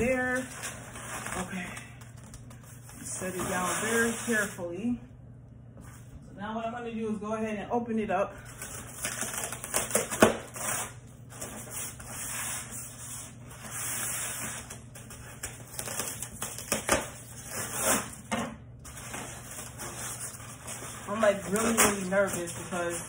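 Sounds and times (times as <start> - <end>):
foam scraping against foam: 3.1 - 4.6.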